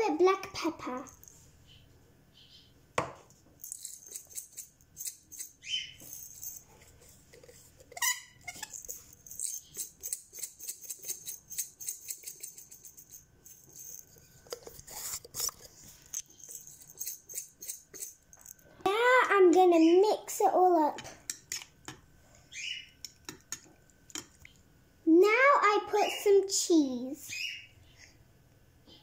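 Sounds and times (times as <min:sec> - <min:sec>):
pepper grinder crunching: 0:03.6 - 0:18.8.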